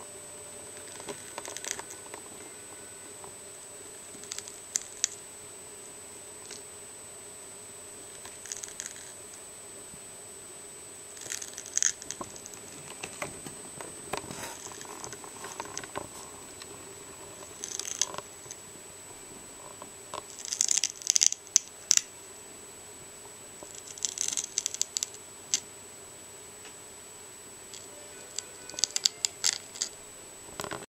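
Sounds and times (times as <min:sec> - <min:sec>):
snail rasping an eggshell: 0:00.6 - 0:02.9, 0:03.9 - 0:05.2, 0:06.4 - 0:06.7, 0:08.2 - 0:09.3, 0:11.2 - 0:13.0, 0:14.2 - 0:16.0, 0:17.4 - 0:18.3, 0:20.2 - 0:22.1, 0:23.7 - 0:25.2, 0:27.8 - 0:30.0.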